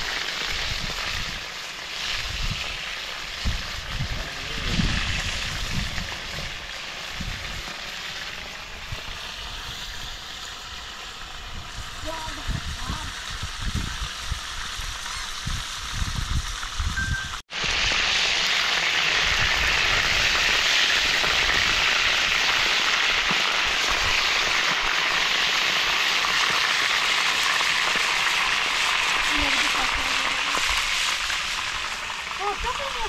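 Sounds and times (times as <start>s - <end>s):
chicken sizzling in hot oil: 0.0s - 33.0s.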